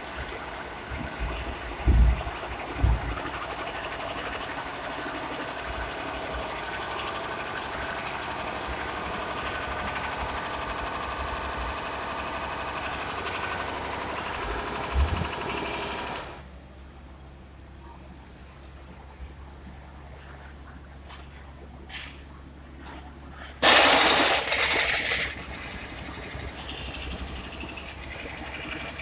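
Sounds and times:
mechanical running noise with rattle: 0.0 - 16.4, 22.8 - 29.0.

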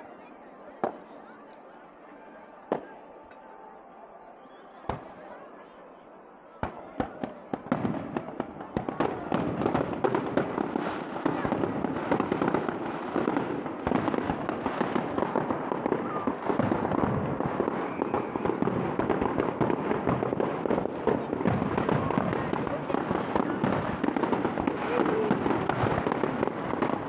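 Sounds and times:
fireworks bangs and crackling: 0.8 - 1.3, 2.6 - 3.6, 4.8 - 5.4, 6.6 - 27.0.

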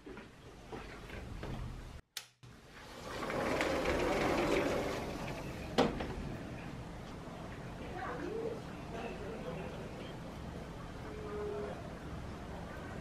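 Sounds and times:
window sliding open rumble: 2.7 - 6.3.

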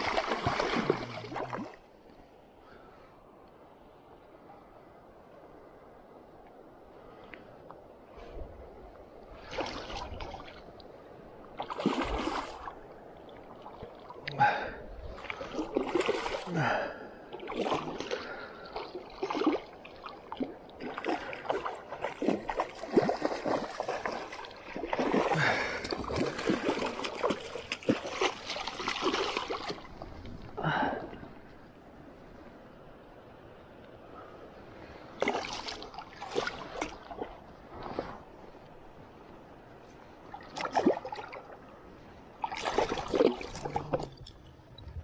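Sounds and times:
fish splashing and thrashing in water: 0.0 - 1.7, 11.6 - 12.7, 18.8 - 30.1, 35.2 - 38.1, 42.4 - 44.0.

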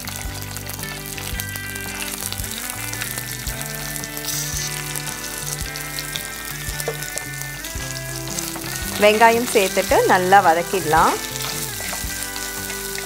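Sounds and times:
onions sizzling in hot oil: 0.0 - 13.0.

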